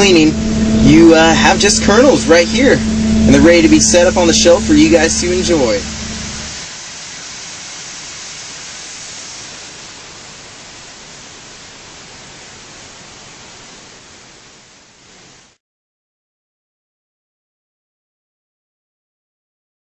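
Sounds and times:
low machine hum: 0:00.0 - 0:15.2
kernels pouring hiss: 0:04.8 - 0:15.6.

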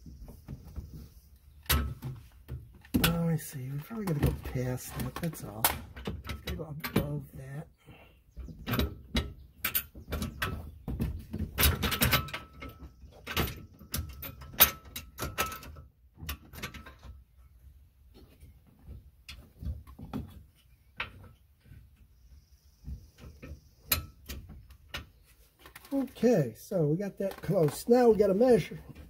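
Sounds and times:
metal bracket clanking against frame: 0:01.6 - 0:07.4, 0:08.6 - 0:17.2.

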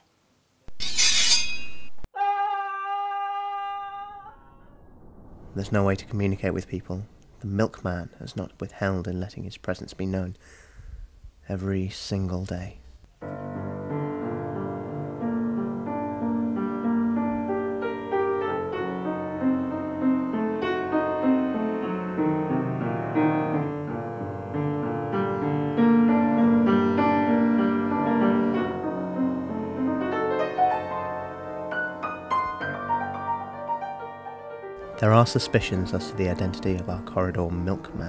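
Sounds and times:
piano music: 0:13.2 - 0:38.0.

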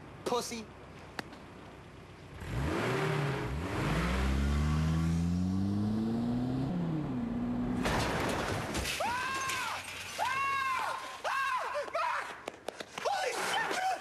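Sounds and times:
car engine revving: 0:02.3 - 0:07.8
car crashing into wall: 0:07.7 - 0:10.5.

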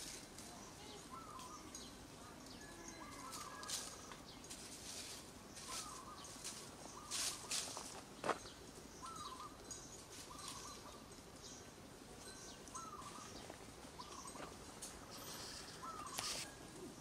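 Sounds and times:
faint whistled bird calls: 0:00.7 - 0:01.7.

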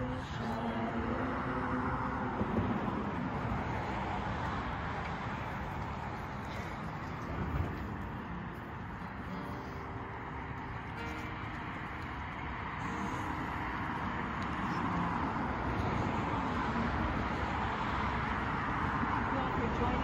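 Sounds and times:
group singing: 0:00.0 - 0:02.4
car passing: 0:00.0 - 0:20.0.

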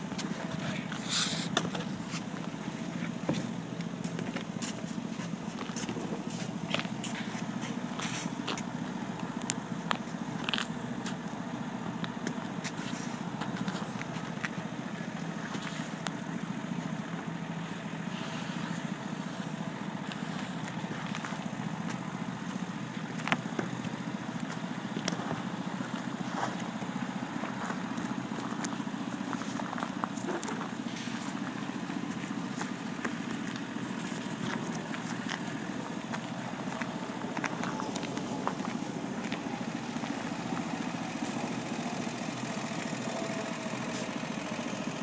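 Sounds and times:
crackles and clicks: 0:20.0 - 0:44.8.

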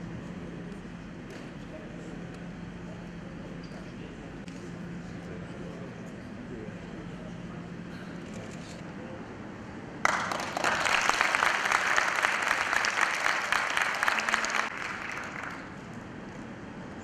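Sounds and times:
audience applauding: 0:10.0 - 0:15.9.

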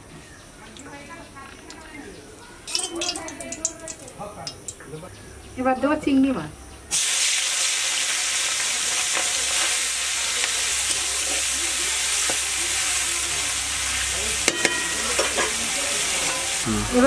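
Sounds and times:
prawns sizzling in hot oil: 0:02.6 - 0:04.8, 0:06.9 - 0:17.0
metal spatula clinking on pan: 0:02.7 - 0:04.9, 0:14.4 - 0:16.5.

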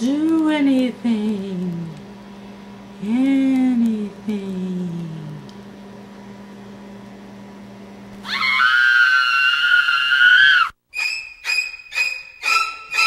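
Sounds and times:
high-pitched shriek: 0:08.2 - 0:13.0
screeching violin strokes: 0:10.2 - 0:13.0.

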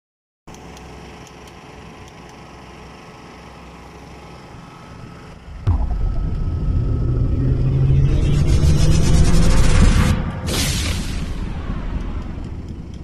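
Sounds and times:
loud low boom: 0:05.5 - 0:12.7.

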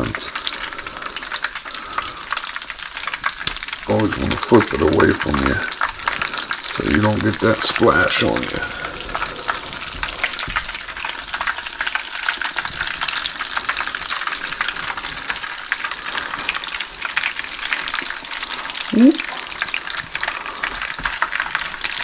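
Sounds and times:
fish cakes sizzling in oil: 0:00.0 - 0:22.0.

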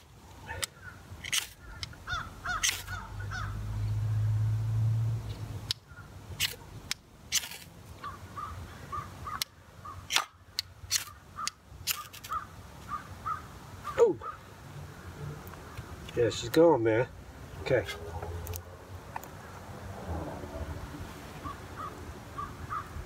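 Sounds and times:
crow cawing: 0:01.6 - 0:03.6, 0:08.0 - 0:10.1, 0:11.1 - 0:14.5, 0:21.4 - 0:23.0.

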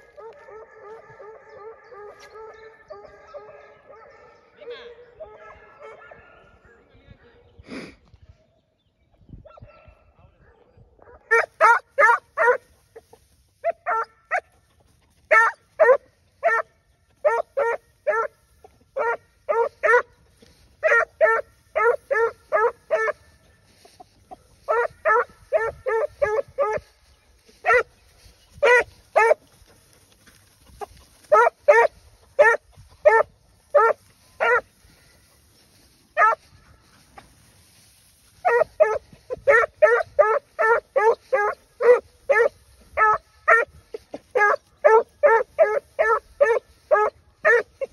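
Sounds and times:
puppy yelping barks: 0:11.3 - 0:12.6, 0:13.6 - 0:14.4, 0:15.3 - 0:16.6, 0:17.2 - 0:18.3, 0:28.6 - 0:29.4, 0:31.3 - 0:34.6, 0:36.2 - 0:36.4, 0:38.4 - 0:43.7, 0:44.4 - 0:47.8.

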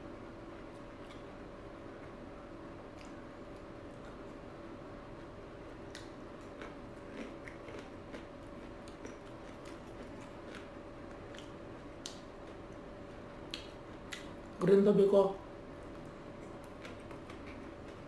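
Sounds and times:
faint steady hum: 0:00.0 - 0:18.0
close-up chewing: 0:05.2 - 0:14.3, 0:15.8 - 0:18.0
mouth clicks and crunches: 0:05.8 - 0:12.6, 0:13.5 - 0:14.4, 0:16.0 - 0:18.0.

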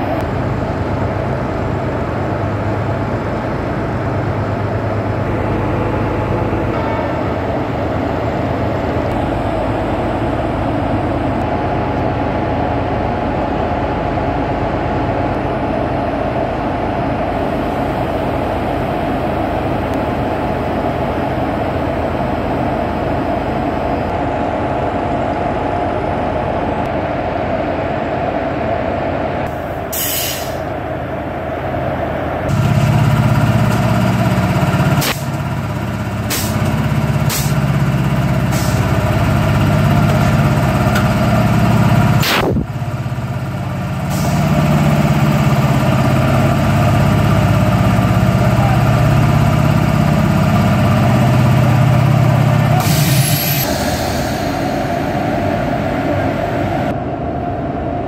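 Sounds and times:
electric locomotive humming: 0:00.0 - 0:58.0
air compressor running: 0:32.5 - 0:56.9.

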